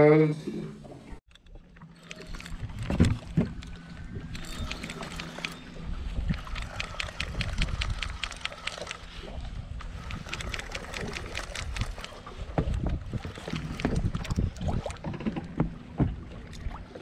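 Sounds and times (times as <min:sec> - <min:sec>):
water against boat hull: 0:01.3 - 0:17.0
wind on microphone: 0:02.3 - 0:17.0
quick ticks: 0:06.3 - 0:09.1, 0:10.0 - 0:12.2.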